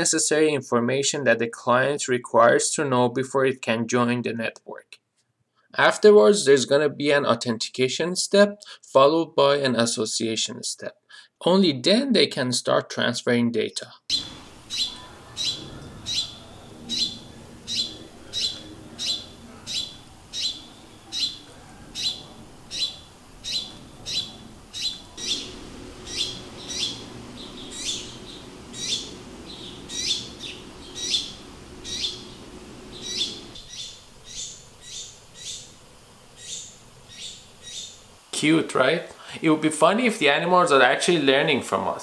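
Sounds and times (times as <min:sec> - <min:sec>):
young sparrow begging chirps: 0:14.1 - 0:38.3.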